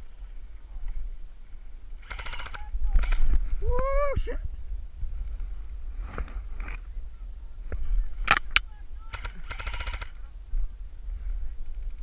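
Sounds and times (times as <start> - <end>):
low wind rumble on microphone: 0.0 - 12.0
full-auto burst rattle: 2.0 - 3.3, 8.3 - 10.2
airsoft rifle cracks: 8.2 - 10.1.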